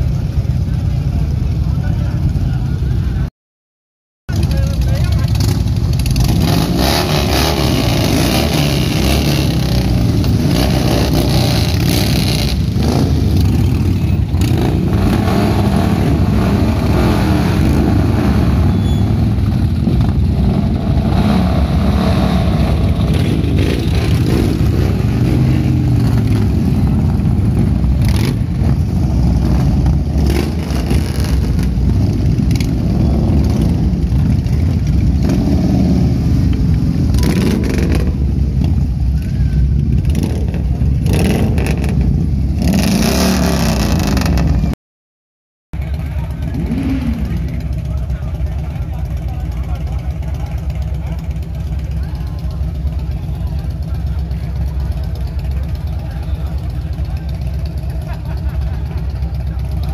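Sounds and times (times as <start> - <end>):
motorcycles idling and revving: 0.0 - 3.3, 4.3 - 44.8, 45.8 - 59.9.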